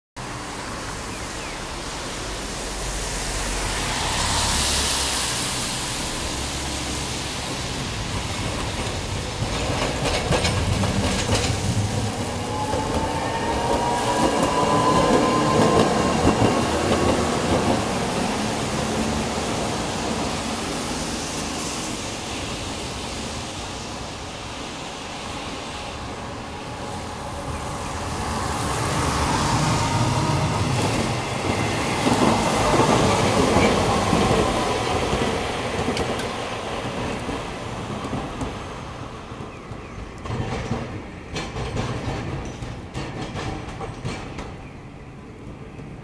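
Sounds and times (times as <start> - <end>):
car hissing past: 0.5 - 7.8
tram whine rising in pitch: 1.6 - 8.5, 10.8 - 22.2, 24.6 - 36.9
tram wheels clattering on rail joints: 5.3 - 46.0.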